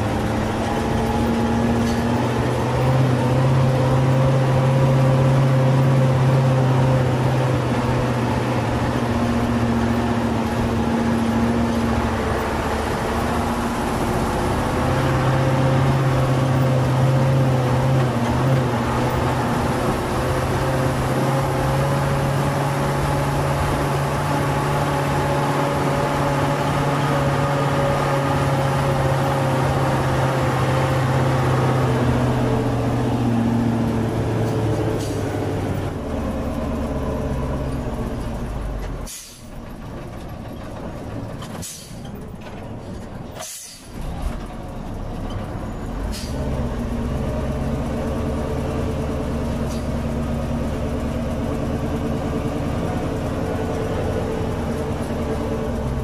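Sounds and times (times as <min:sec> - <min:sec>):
truck engine running: 0:00.0 - 0:56.0
short air hisses: 0:39.1 - 0:39.5, 0:43.4 - 0:44.0.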